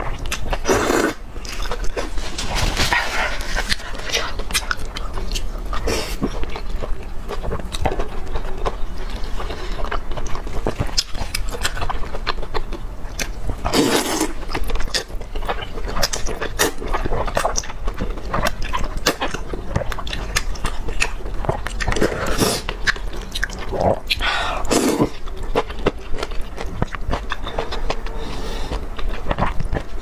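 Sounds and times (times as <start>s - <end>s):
wet chewing and mouth smacks: 14.3s - 28.1s.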